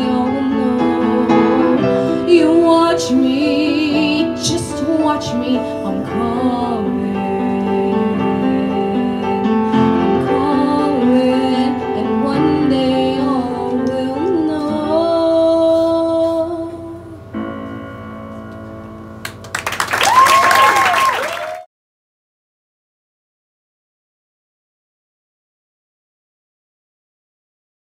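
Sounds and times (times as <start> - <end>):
woman singing: 0.0 - 17.3
piano accompaniment: 0.0 - 20.2.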